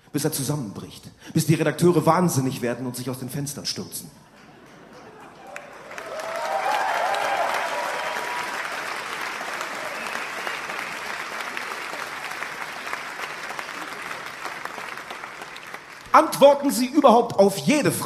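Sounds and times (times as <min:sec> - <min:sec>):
audience applauding: 0:04.3 - 0:16.8.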